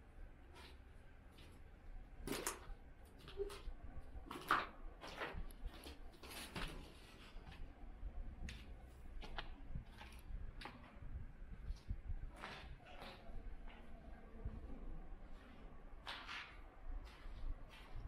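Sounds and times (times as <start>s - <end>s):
faint low rumble: 7.0s - 18.0s.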